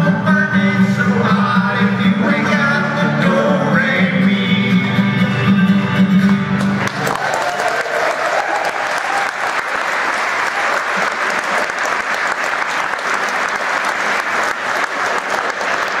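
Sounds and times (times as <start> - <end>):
audience applauding: 6.2 - 16.0.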